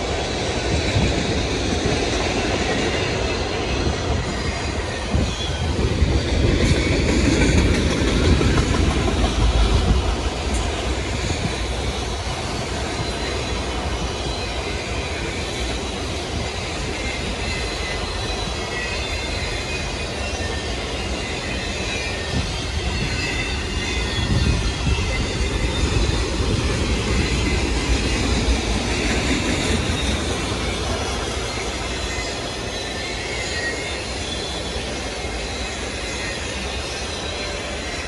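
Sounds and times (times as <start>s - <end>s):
high wheel squeal: 0.0s - 38.0s
steel wheels rumbling on rail: 0.0s - 38.0s.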